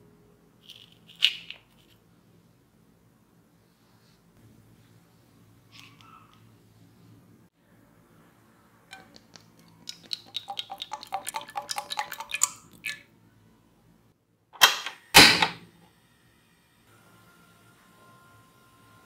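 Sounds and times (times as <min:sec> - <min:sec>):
oil glugging into a pan: 0:09.6 - 0:13.0.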